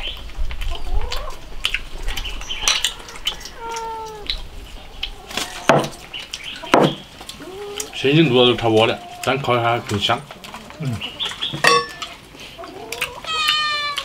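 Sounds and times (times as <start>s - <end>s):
cat meowing: 3.1s - 4.4s, 13.2s - 14.0s.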